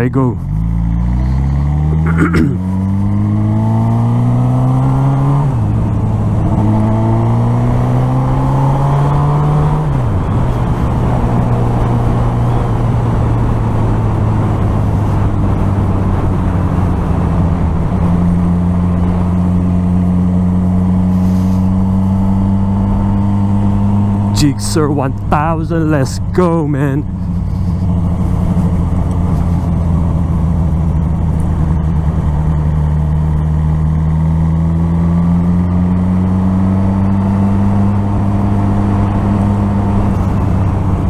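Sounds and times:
motorcycle engine accelerating: 0.0 - 41.0
wind noise: 5.0 - 32.6.

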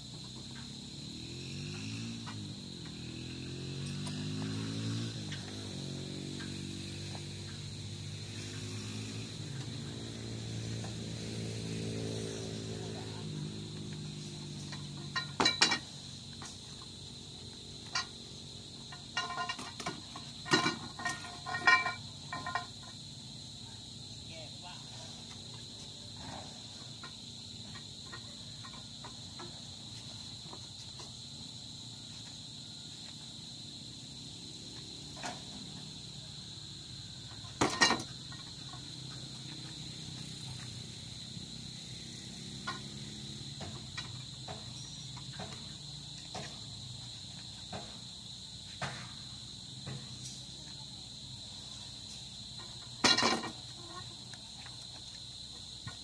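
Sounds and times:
insects chirring: 0.0 - 56.0
metal pipe clanking on metal: 14.7 - 15.9, 18.9 - 23.0, 37.4 - 38.8, 52.6 - 54.0.

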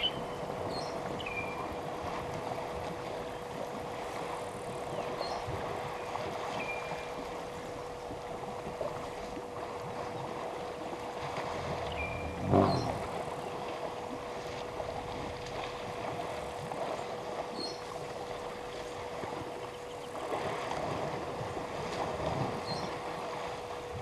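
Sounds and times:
faint steady hum: 0.0 - 24.0
elephants splashing in water: 0.1 - 24.0
bird whistling: 11.9 - 13.1.

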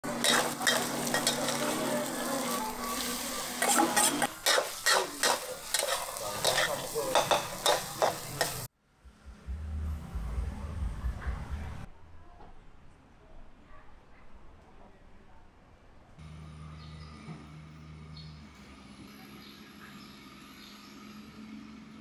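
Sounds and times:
food sizzling in a pan: 0.0 - 8.7
metal spatula scraping a pan: 0.1 - 8.7
steady hum: 8.9 - 11.9
low rumble: 8.9 - 12.1.

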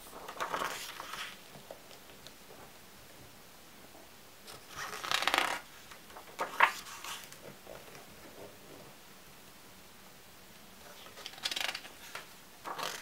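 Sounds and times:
soft paper rustles: 0.0 - 2.7, 4.5 - 8.6, 10.8 - 13.0
page turning swish: 0.1 - 1.4, 6.4 - 7.4, 11.2 - 13.0
page snapping over: 4.5 - 7.4, 11.1 - 13.0.

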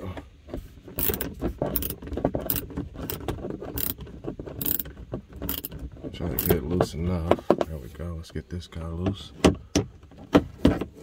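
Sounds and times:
ratchet pawl clicking: 1.0 - 3.2, 3.8 - 4.0, 4.6 - 5.7, 6.4 - 6.6.

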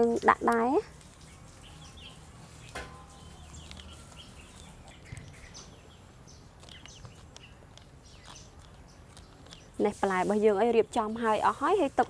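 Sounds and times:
birds chirping: 0.0 - 12.0
scissors snipping: 6.6 - 10.0.

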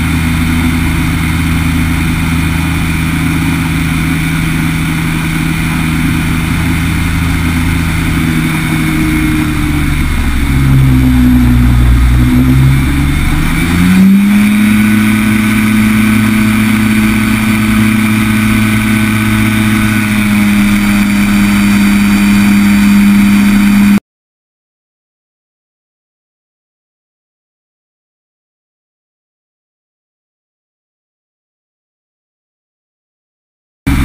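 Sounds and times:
aircraft engine and propeller: 0.0 - 24.0.

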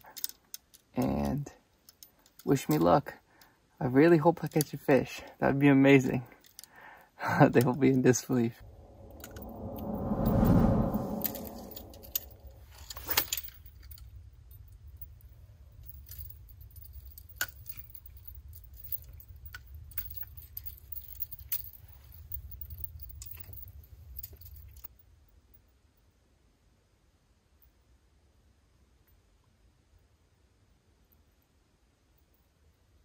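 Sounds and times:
fishing line casting whir: 8.6 - 12.5.

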